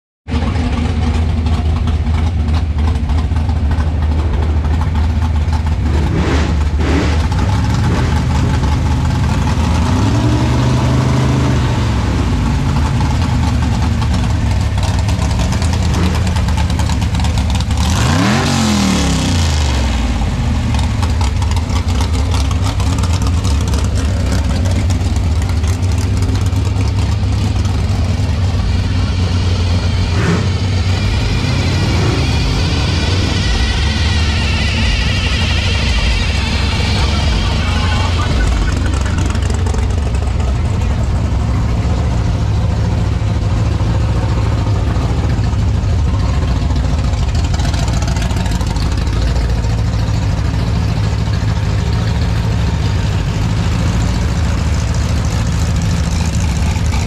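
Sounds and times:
loud engine idling and revving: 0.2 - 57.0.

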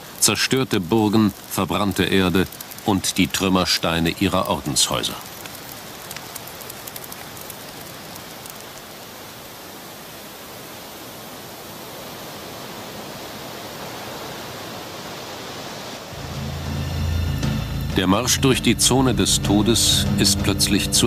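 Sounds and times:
brush fire crackling: 0.0 - 10.8
fire rushing hiss: 0.0 - 19.4.

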